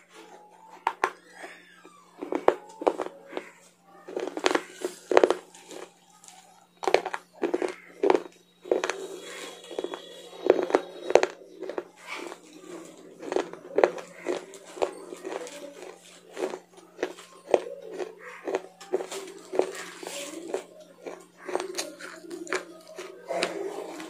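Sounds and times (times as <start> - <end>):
chewing crunchy food: 0.0 - 24.0
steady low hum: 0.0 - 24.0.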